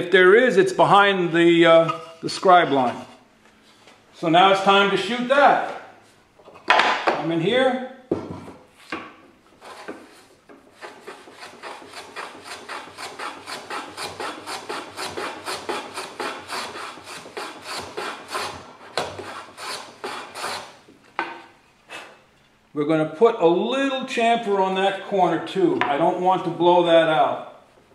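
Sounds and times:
hand plane shaving wood: 9.6 - 20.7.

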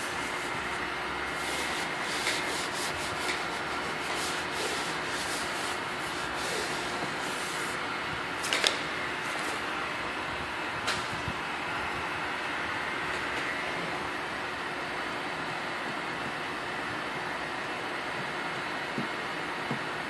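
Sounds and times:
gloved hand rubbing film: 0.0 - 7.8.

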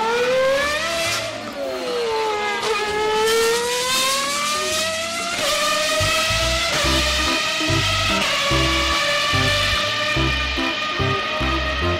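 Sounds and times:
engine revving: 2.8 - 11.9.

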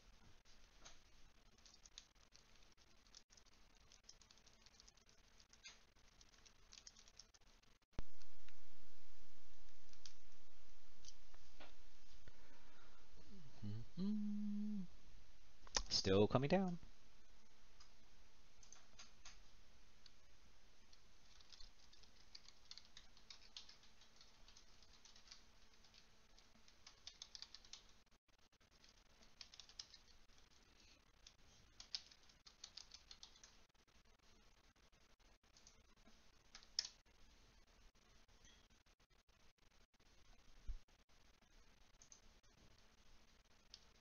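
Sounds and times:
computer keyboard typing: 1.5 - 7.5, 20.9 - 28.0, 28.8 - 30.2, 31.2 - 33.6, 36.5 - 37.0.

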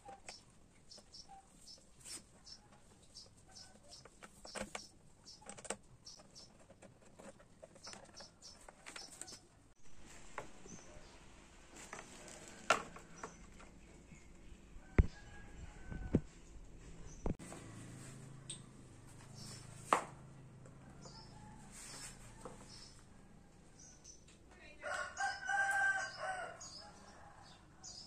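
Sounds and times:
plastic crackle: 11.7 - 13.1.

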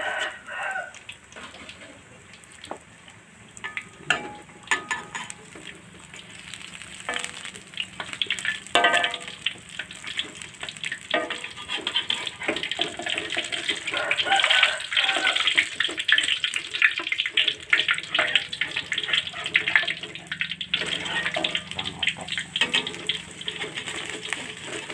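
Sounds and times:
food sizzling in hot oil: 0.0 - 24.9
metal spatula scraping pan: 3.6 - 5.7, 7.0 - 24.9.

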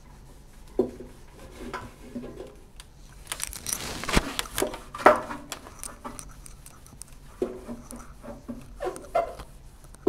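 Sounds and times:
wipe rubbing inside microwave: 3.1 - 10.0.

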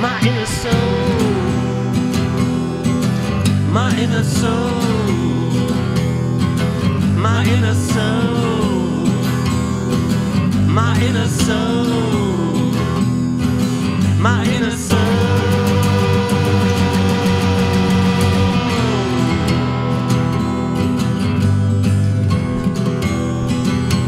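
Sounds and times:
rock band playing instrumental: 0.0 - 3.5, 14.9 - 21.8.

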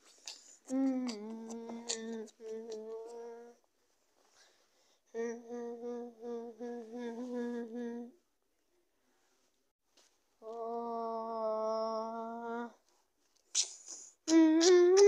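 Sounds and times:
person humming: 0.3 - 3.6, 5.2 - 8.2, 10.4 - 12.8, 14.3 - 15.0.

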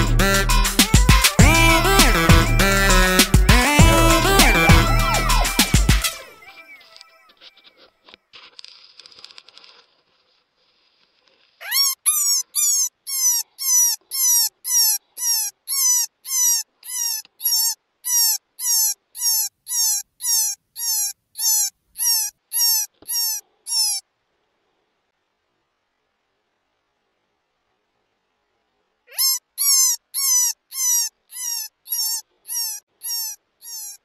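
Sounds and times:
electronic squealing yelps: 11.6 - 24.0, 29.1 - 34.0.

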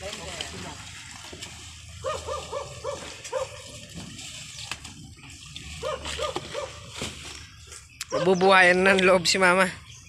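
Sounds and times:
dog barking: 2.0 - 3.6, 5.8 - 6.8, 8.1 - 8.4.

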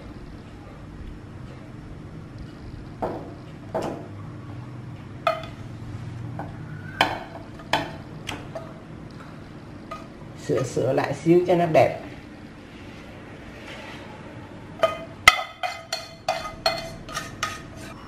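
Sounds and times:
utensils clinking on ceramic plate: 14.8 - 17.7.

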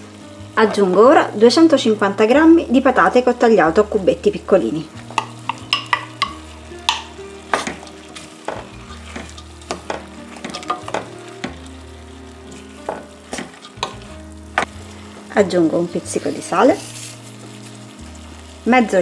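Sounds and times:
food sizzling in oil: 0.0 - 19.0
wooden spoon knocking and scraping pot: 5.0 - 11.6, 12.5 - 15.3.

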